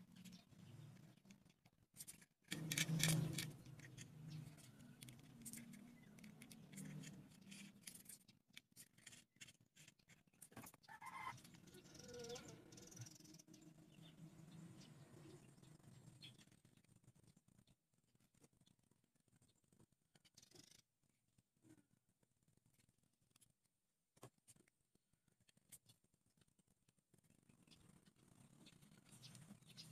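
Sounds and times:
wooden sticks clicking and scraping: 0.2 - 11.6.

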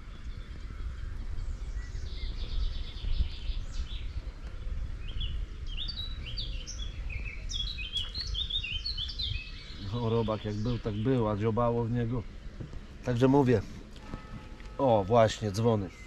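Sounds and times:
songbirds chirping: 0.0 - 16.0
steady low rumble: 0.0 - 16.0.

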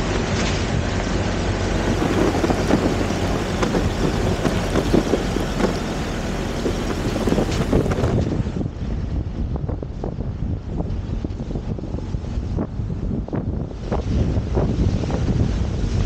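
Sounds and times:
vehicle engines running: 0.0 - 9.1
wind on microphone: 0.0 - 16.0
tyres crunching over gravel: 1.5 - 8.3.

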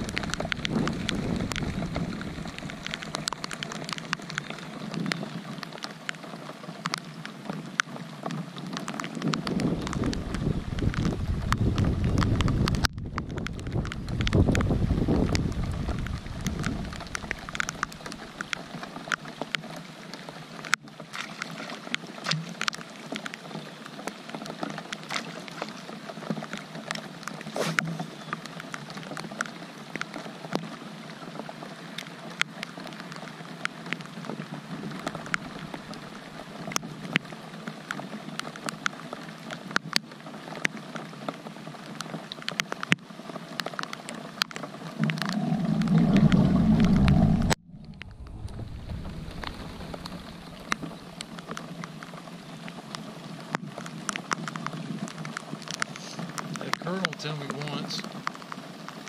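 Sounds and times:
raindrops ticking near microphone: 0.0 - 59.0
steady rain falling: 0.0 - 59.0.

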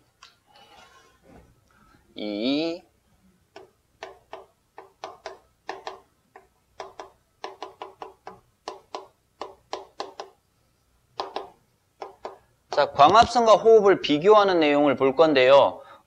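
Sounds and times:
chalk tapping and scratching: 11.2 - 12.4.

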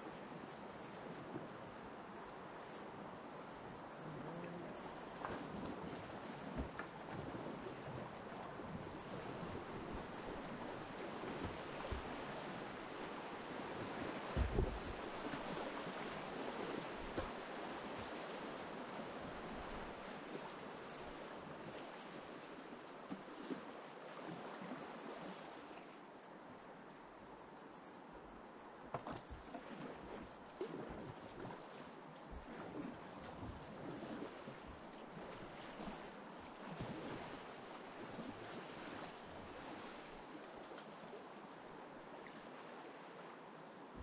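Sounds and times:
rushing white water: 0.0 - 23.0
paddle strokes splashing: 4.1 - 25.7, 28.9 - 41.2
dull thump: 14.4 - 15.0.

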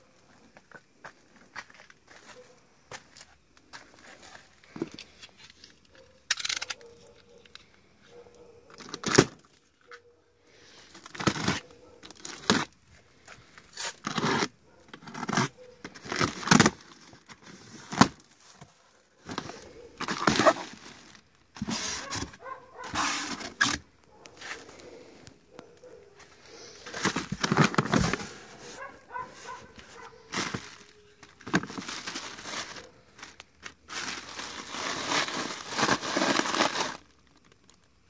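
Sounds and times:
cardboard and plastic tearing: 8.8 - 9.5, 11.0 - 12.8, 13.7 - 23.9, 26.8 - 37.7.

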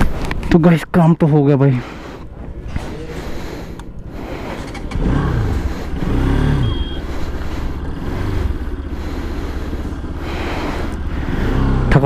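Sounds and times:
motorcycle engine pulling away: 2.5 - 12.0.

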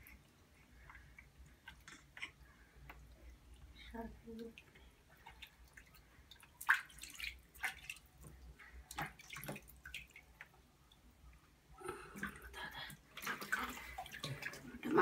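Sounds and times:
water splashing in baby bath: 3.0 - 10.5, 12.1 - 15.0.

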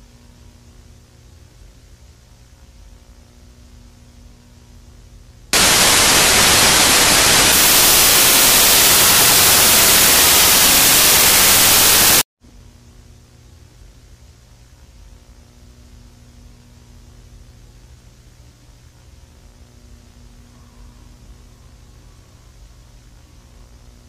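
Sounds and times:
faint hiss with low hum: 0.0 - 24.0
harsh static noise: 5.6 - 12.3.

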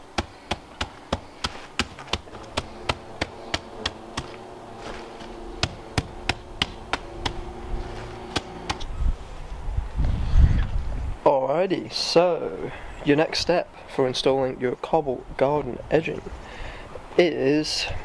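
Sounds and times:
hand tamper pounding crushed stone: 0.0 - 8.9.

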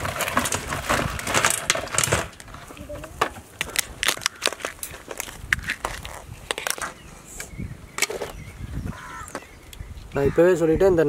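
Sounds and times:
crab shells clicking and cracking: 3.6 - 6.9.

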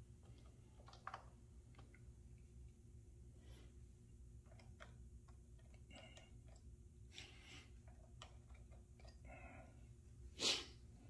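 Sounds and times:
faint plastic clicks and rustling: 0.2 - 2.4.

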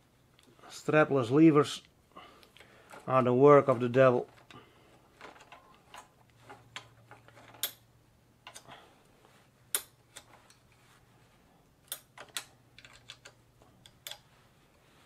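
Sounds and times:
clicks and knocks of tools: 5.2 - 8.7, 9.7 - 10.7, 11.8 - 14.3.

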